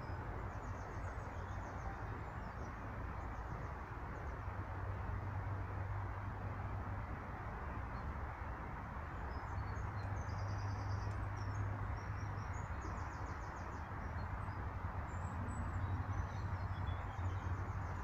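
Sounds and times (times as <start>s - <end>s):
songbirds trilling and chirping: 9.0s - 18.0s.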